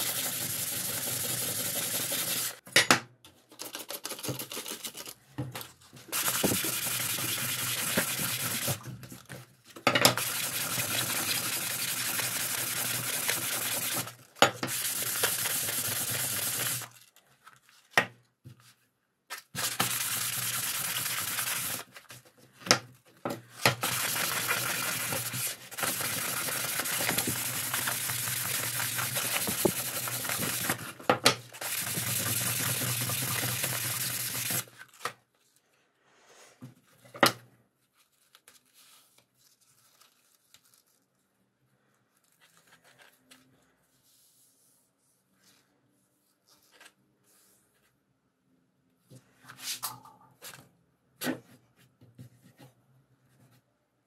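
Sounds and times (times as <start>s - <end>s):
sandpaper scraping metal blade: 0.0s - 2.6s, 6.1s - 8.8s, 14.7s - 16.9s, 19.6s - 21.9s, 23.8s - 30.8s, 31.6s - 34.6s.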